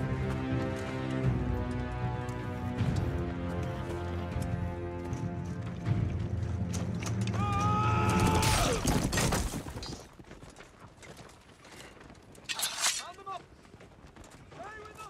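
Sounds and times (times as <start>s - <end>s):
armour clanking and rattling: 12.4s - 13.2s.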